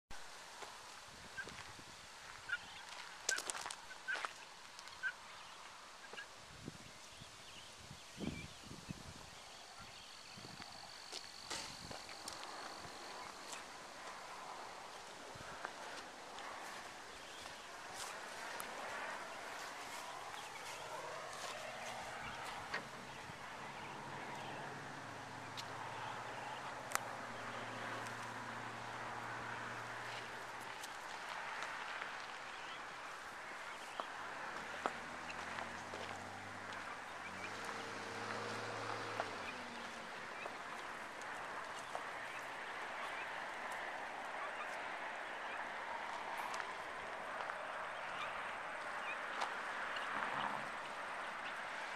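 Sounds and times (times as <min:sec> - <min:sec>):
guinea fowl calling: 0:02.5 - 0:06.3
low engine hum: 0:10.5 - 0:44.6.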